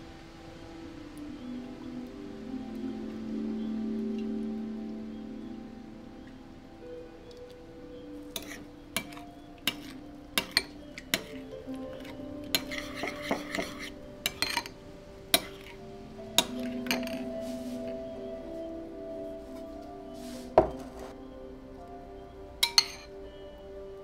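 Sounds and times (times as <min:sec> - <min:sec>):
soft background music: 0:00.0 - 0:24.0
spoon clinking against bowl: 0:08.2 - 0:15.8, 0:16.4 - 0:17.3, 0:22.6 - 0:23.1
spoon scraping in bowl: 0:08.3 - 0:14.7, 0:15.4 - 0:15.8.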